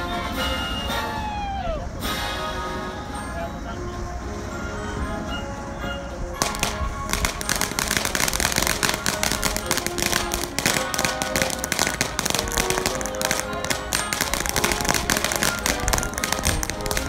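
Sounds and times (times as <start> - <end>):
background music: 0.0 - 17.0
firework crackling: 6.4 - 17.0.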